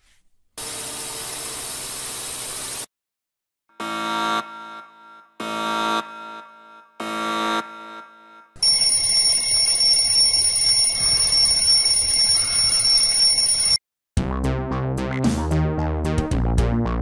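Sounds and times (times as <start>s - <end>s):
alarm clock bell ringing: 8.6s - 13.8s
synthesizer music with drum beat: 14.2s - 17.0s.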